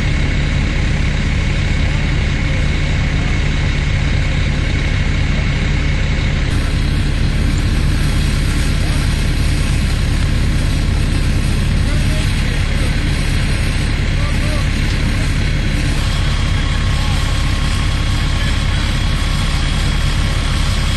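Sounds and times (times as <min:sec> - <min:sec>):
fire engine motor humming: 0:00.0 - 0:20.9.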